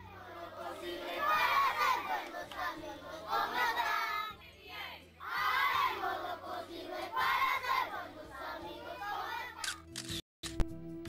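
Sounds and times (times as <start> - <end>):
children singing in unison: 0.0 - 4.3, 5.2 - 9.6.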